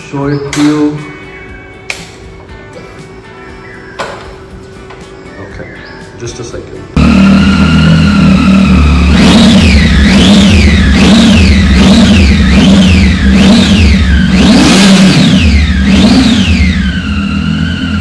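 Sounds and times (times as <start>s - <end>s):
motorcycle engine revving: 6.9s - 18.0s.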